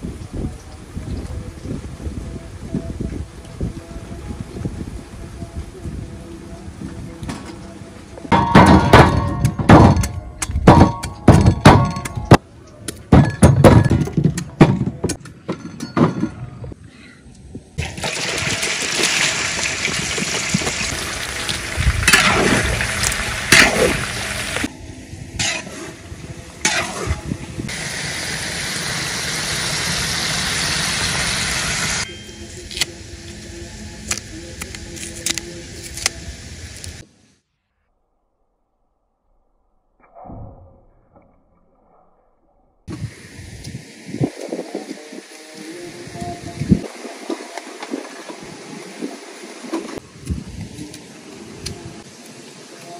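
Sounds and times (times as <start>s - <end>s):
chicken sizzling in hot oil: 17.8s - 24.7s, 27.7s - 32.0s
banana being peeled: 34.0s - 36.2s.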